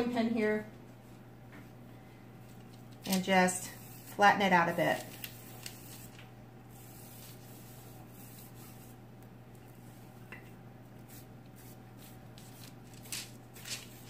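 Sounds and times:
steady low hum: 0.0s - 14.0s
rolling pin rolling dough: 6.7s - 14.0s.

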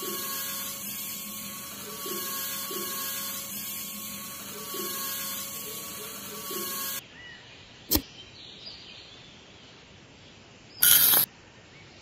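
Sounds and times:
small electric motor whine: 0.0s - 7.0s, 10.8s - 11.3s.

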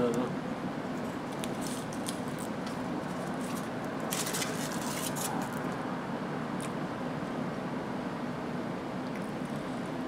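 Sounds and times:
foil wrapper crinkling: 3.1s - 5.5s.

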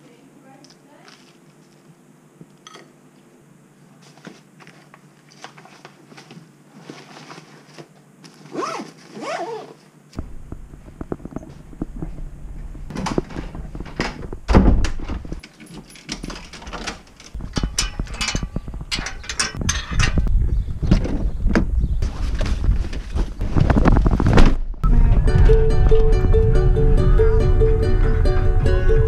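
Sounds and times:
heavy thump: 10.2s - 15.4s
low rumble: 10.2s - 15.4s, 17.4s - 29.0s
door opening: 10.2s - 20.3s
clicks knocks and rustles: 12.9s - 20.3s.

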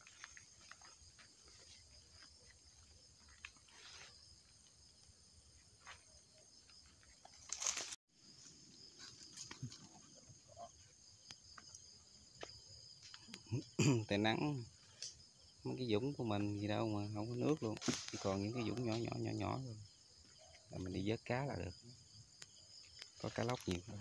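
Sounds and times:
crickets chirping: 0.0s - 24.0s
rustling through vegetation: 5.7s - 10.1s, 17.4s - 19.3s.

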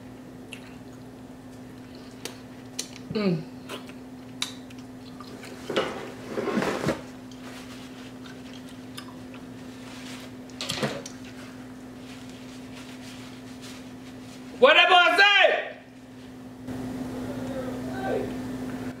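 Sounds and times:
faint steady hum: 0.0s - 19.0s
chewing and mouth noises: 0.1s - 5.7s, 8.1s - 9.7s.

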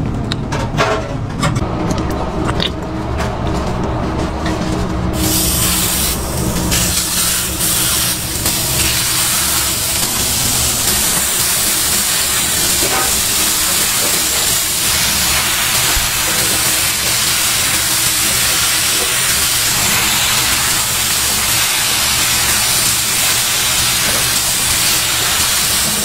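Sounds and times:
burger patties sizzling on griddle: 5.2s - 26.0s.

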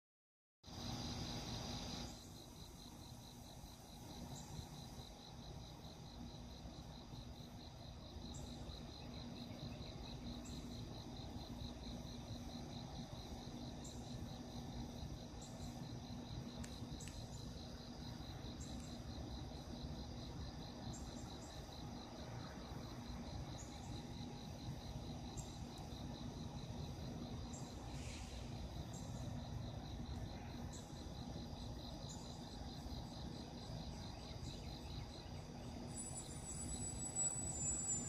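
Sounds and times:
high insect trill: 0.6s - 38.0s
insects chirping rhythmically: 0.6s - 38.0s.

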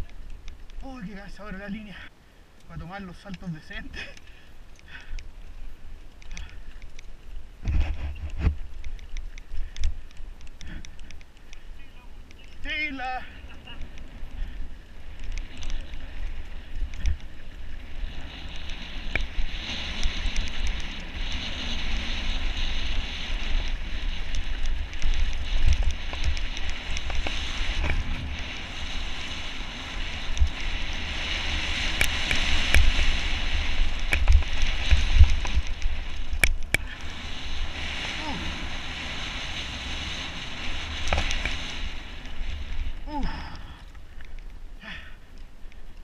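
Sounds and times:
wind rumbling on microphone: 0.0s - 46.0s
bike knocking and rattling: 6.1s - 37.1s, 39.6s - 42.4s.

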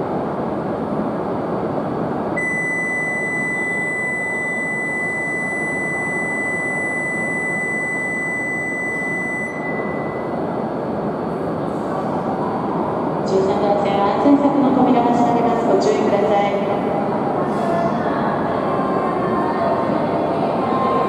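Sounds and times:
platform background noise: 2.1s - 21.0s
high electronic tone: 2.4s - 10.4s.

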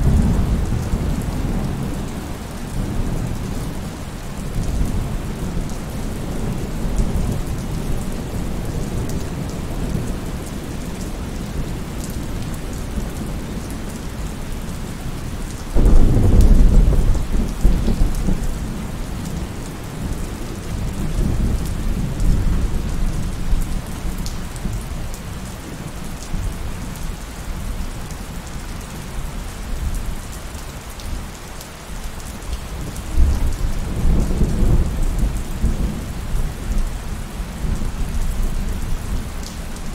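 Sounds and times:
low rumbling thunder: 0.0s - 10.6s, 15.8s - 25.1s, 32.9s - 39.5s
steady rain: 0.0s - 39.9s.

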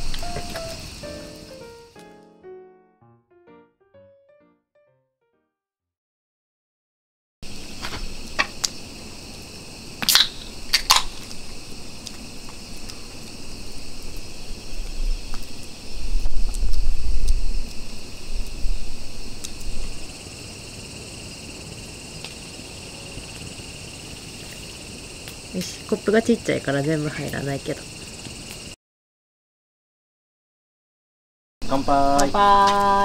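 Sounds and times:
crickets trilling: 0.0s - 2.1s, 7.4s - 28.8s, 31.6s - 33.0s.

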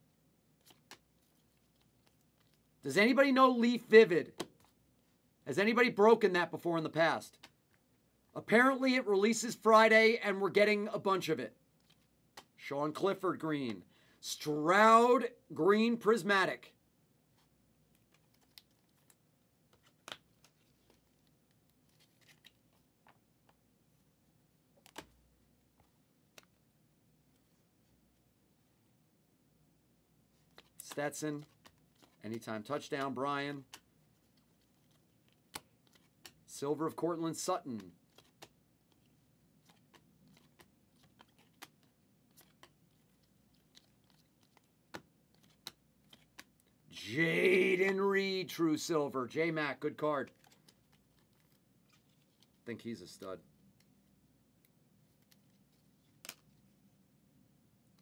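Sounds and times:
trading cards clicking and scraping: 30.4s - 32.2s, 32.8s - 36.5s, 37.6s - 46.8s, 50.2s - 52.6s.

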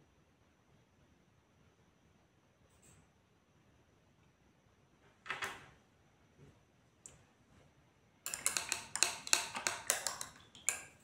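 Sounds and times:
brush clicking on paint pots: 8.3s - 11.0s.

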